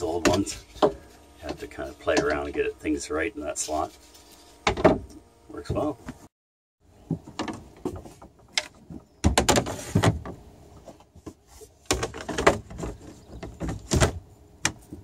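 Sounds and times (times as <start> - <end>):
boards scraping: 7.2 - 14.3.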